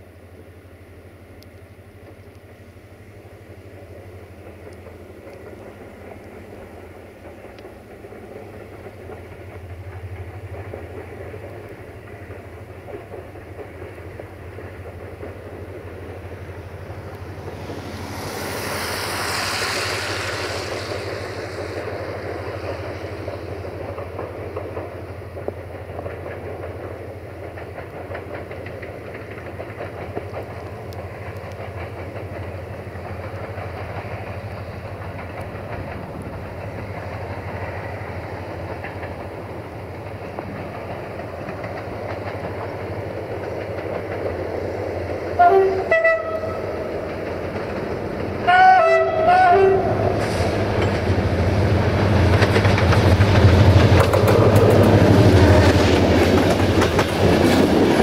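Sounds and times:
diesel locomotive engine drone: 0.0 - 58.0
train wheels clicking over rail joints: 1.3 - 58.0
loud rushing noise: 16.8 - 23.3.

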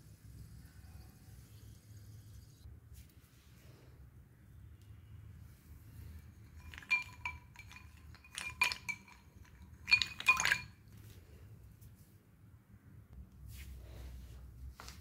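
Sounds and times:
glass bowl clinking: 6.3 - 10.8.

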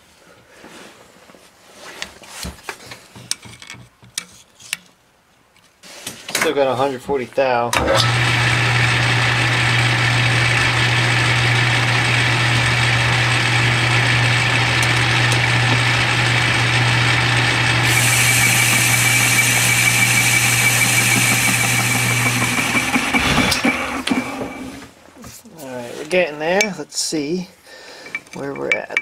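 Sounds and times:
lathe motor hum: 7.8 - 24.9
lathe tool cutting metal: 7.8 - 24.9
high steady whine: 17.8 - 24.9.

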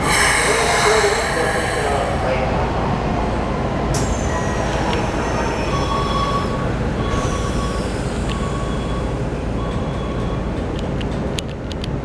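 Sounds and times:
steady low hum: 0.0 - 7.1
train sliding doors closing: 0.0 - 11.3.

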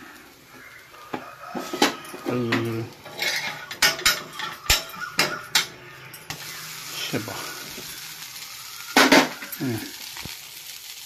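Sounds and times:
utensils clinking on cookware: 1.5 - 6.5, 8.9 - 10.1.

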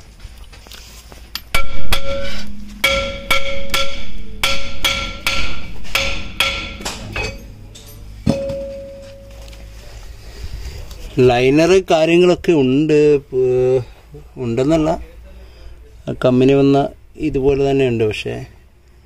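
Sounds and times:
hammer striking metal brake drum: 1.5 - 9.5.

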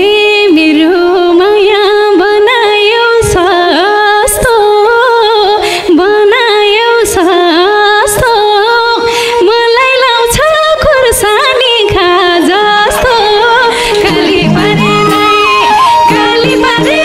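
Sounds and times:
woman singing into a microphone: 0.0 - 17.0.

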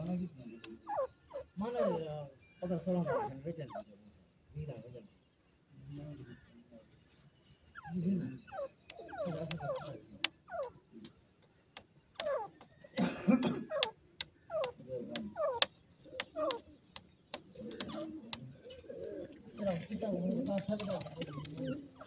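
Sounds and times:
francolins calling: 0.0 - 22.0
sharp ticks: 13.7 - 18.5.

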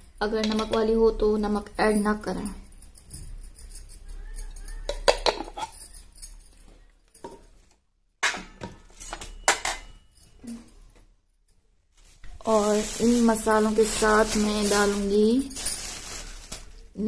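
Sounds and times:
glass bangles chinking: 0.0 - 7.6, 8.3 - 11.0, 13.0 - 16.9
spoon clinking on ceramic dish: 4.6 - 6.0, 8.2 - 10.0.

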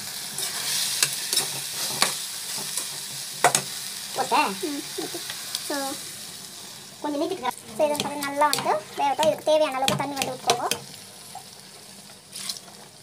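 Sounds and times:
food sizzling: 0.0 - 13.0
spoon scraping a pan: 0.4 - 3.7, 7.7 - 11.5.

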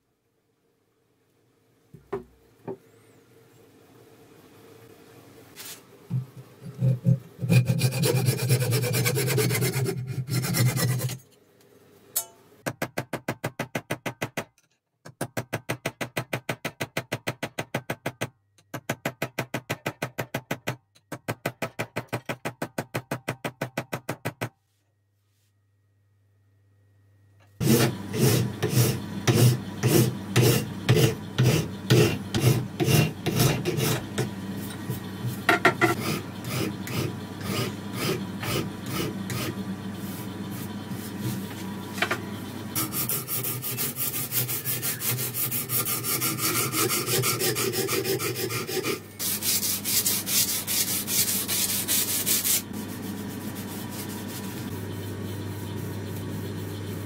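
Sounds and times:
knife blade rubbing on abrasive paper: 42.8 - 54.8.

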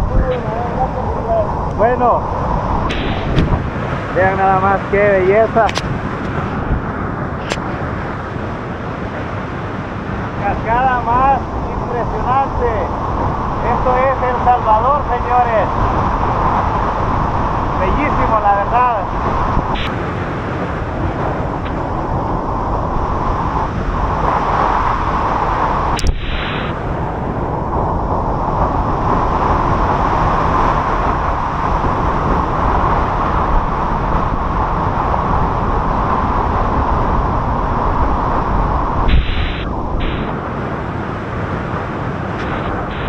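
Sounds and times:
waterfall crashing: 2.9 - 6.6.

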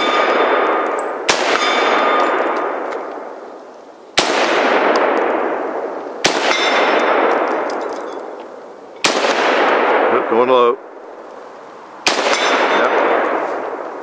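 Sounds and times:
metallic ring of steel target: 0.0 - 2.8, 6.4 - 8.4, 12.2 - 13.6
rifle shots echoing: 0.0 - 3.4, 4.2 - 8.4, 9.0 - 10.5, 12.0 - 13.8.

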